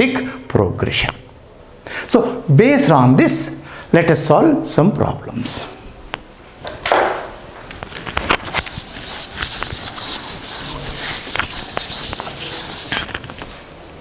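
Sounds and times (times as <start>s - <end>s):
duster rubbing on chalkboard: 8.4s - 13.2s.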